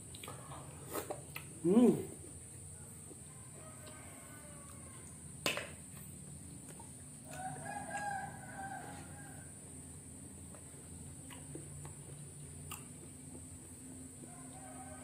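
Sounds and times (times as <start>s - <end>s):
rooster crowing: 3.3s - 5.3s, 7.2s - 9.7s, 14.2s - 15.0s.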